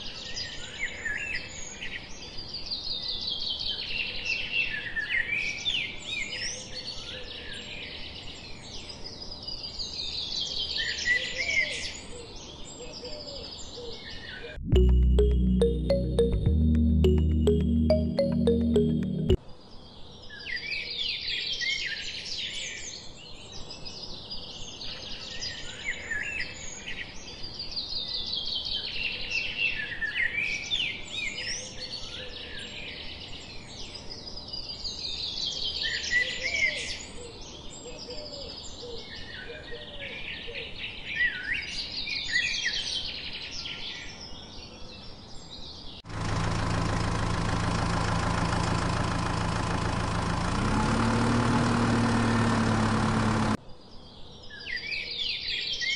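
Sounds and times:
tractor engine drone: 46.1s - 53.6s.

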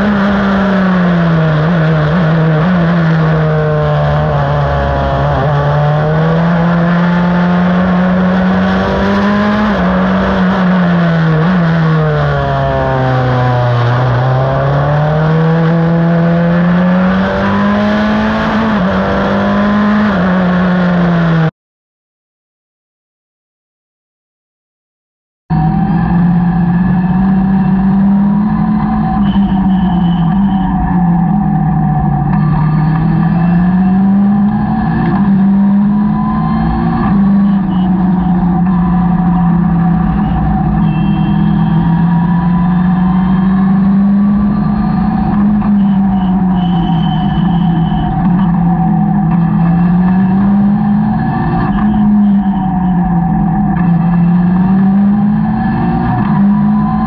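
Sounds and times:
race car engine running: 25.5s - 57.0s.

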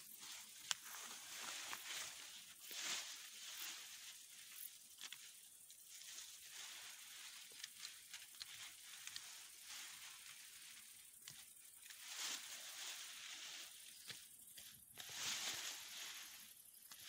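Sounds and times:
plants rustling: 0.0s - 17.0s
stems snapping: 0.6s - 1.0s, 4.9s - 5.4s, 7.1s - 9.4s.

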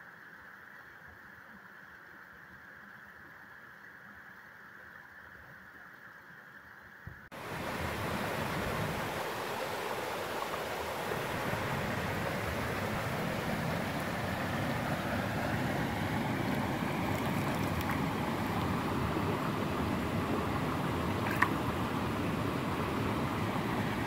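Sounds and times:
water cascade rushing into pool: 7.3s - 24.0s.

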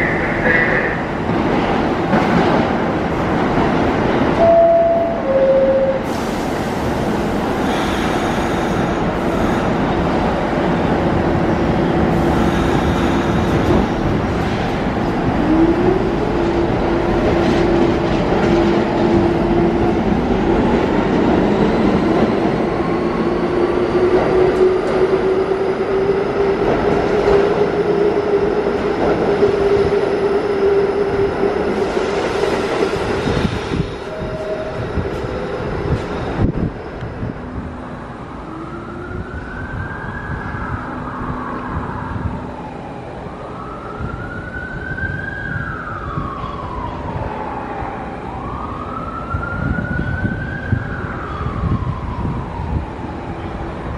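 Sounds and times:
train wheels rumbling and clattering: 1.1s - 4.4s, 6.0s - 37.8s.

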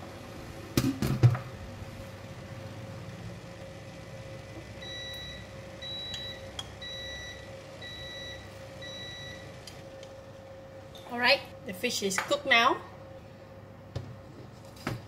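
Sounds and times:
steady hum: 0.0s - 15.0s.

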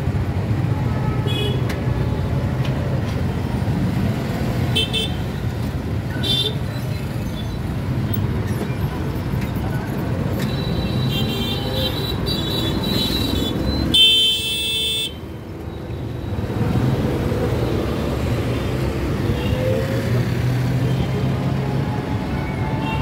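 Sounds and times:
vehicle engines running: 5.3s - 13.9s
vehicle horns tooting: 10.6s - 15.2s.

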